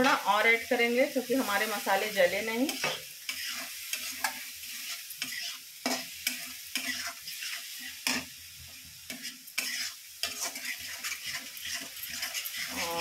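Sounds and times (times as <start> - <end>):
spices sizzling in oil: 0.0 - 13.0
spatula scraping pan: 2.7 - 8.4, 9.1 - 13.0.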